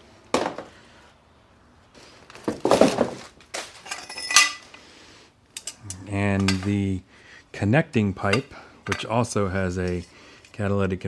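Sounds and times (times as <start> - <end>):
metal parts knocking and clinking: 3.8 - 4.8
metal parts rattling: 3.8 - 4.8.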